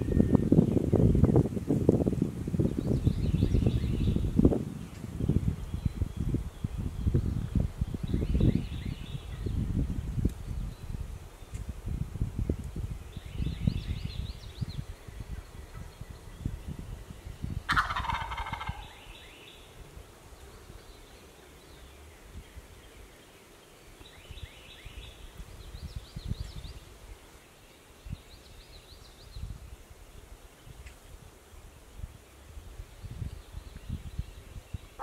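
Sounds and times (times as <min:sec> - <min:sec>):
turkey gobbling: 0:17.7 - 0:18.9.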